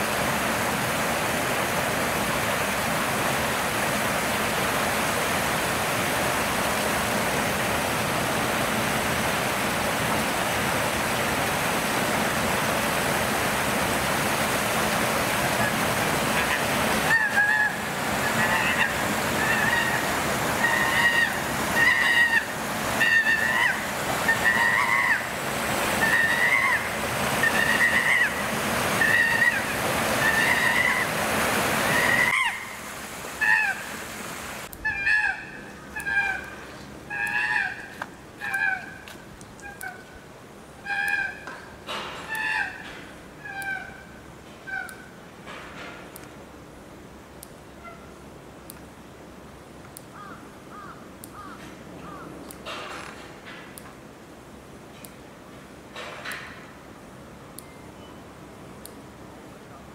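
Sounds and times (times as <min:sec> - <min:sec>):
chimpanzees screaming: 0:16.4 - 0:20.0, 0:20.6 - 0:25.3, 0:26.0 - 0:28.4, 0:29.0 - 0:31.1.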